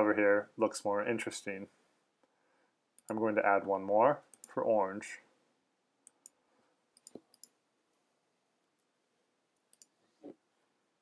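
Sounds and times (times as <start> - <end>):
mouse and keyboard clicks: 7.0 - 7.6.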